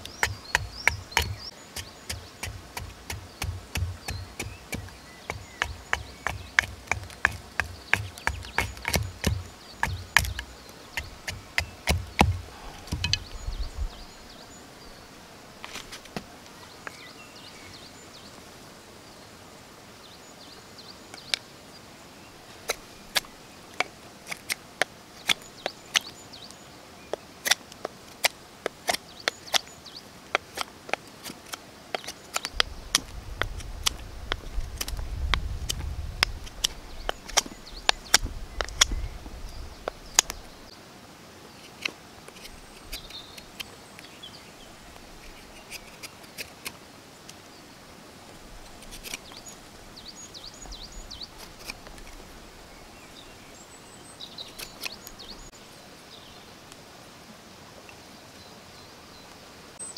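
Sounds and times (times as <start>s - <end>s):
knife whittling dry wood: 0.0s - 13.4s, 48.7s - 49.4s
hatchet thudding into log: 2.1s - 10.5s, 11.3s - 13.3s.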